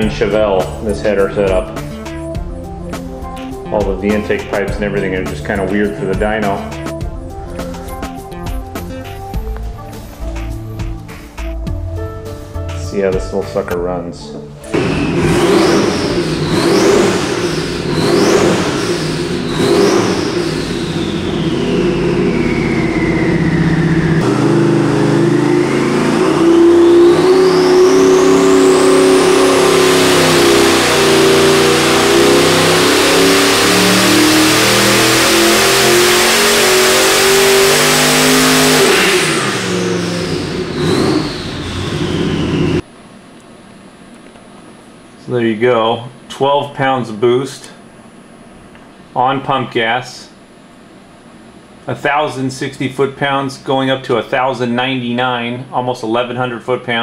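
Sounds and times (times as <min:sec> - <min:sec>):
car engine revving: 0:00.0 - 0:09.2, 0:14.4 - 0:42.8
turbo whine: 0:00.0 - 0:49.7.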